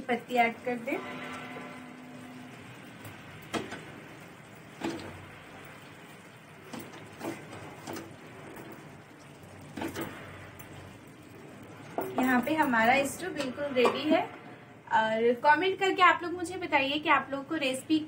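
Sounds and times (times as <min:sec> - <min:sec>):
spoon scraping metal pan: 0:00.7 - 0:02.8.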